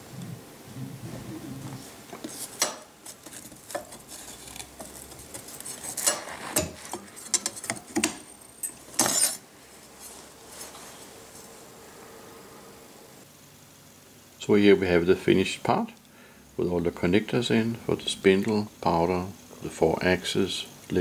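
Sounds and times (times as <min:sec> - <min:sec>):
metal plate clinking and scraping: 0:02.6 - 0:09.4.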